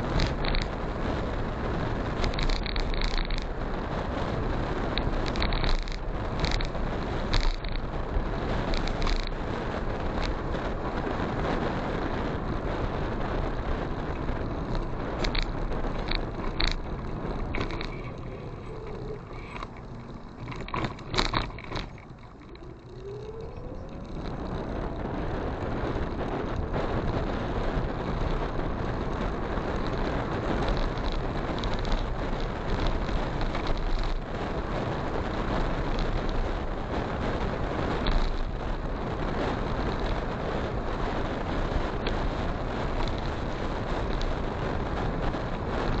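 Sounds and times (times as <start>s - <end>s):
wind rushing over microphone: 0.0s - 46.0s
motorcycle engine: 13.0s - 34.3s.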